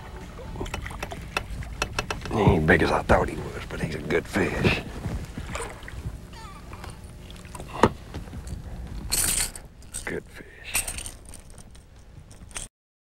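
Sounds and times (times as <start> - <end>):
handling noises: 0.1 - 12.7
water splashing: 0.2 - 8.1.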